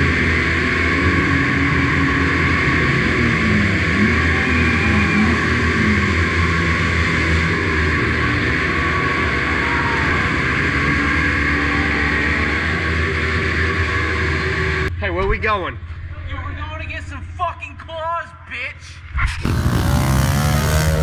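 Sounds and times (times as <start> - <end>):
small motorbike engines droning: 0.0 - 14.9, 19.4 - 21.0.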